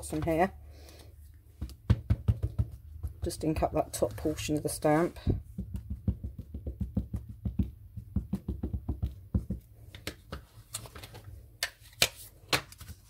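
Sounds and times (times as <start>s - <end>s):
ink pad dull taps: 5.3s - 9.6s.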